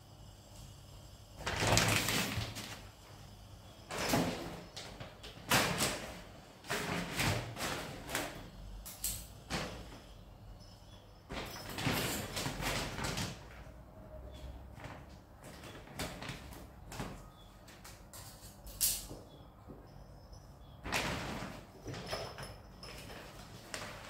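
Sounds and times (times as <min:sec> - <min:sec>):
cat litter pouring into plastic box: 0:01.4 - 0:02.9.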